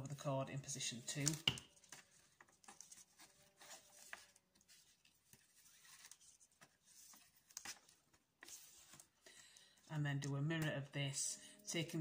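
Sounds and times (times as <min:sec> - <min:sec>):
cord rustling: 0:01.0 - 0:09.9.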